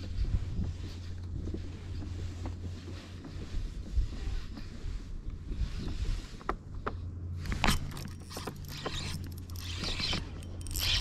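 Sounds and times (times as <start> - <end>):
steady low hum: 0.0 - 11.0
fishing reel clicks and scrapes: 7.5 - 11.0.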